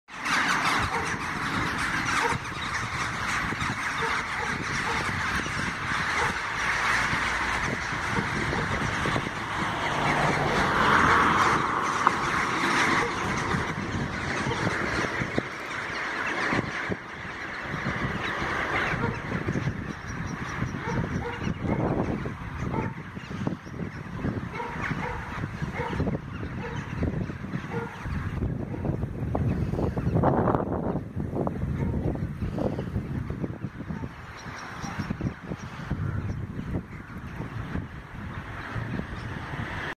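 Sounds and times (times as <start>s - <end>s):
flock of rooks cawing: 0.1s - 39.9s.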